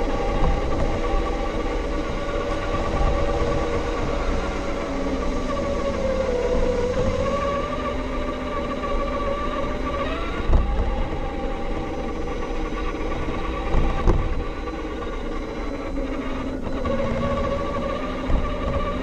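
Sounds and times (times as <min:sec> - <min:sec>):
electric motor whine: 0:00.0 - 0:19.0.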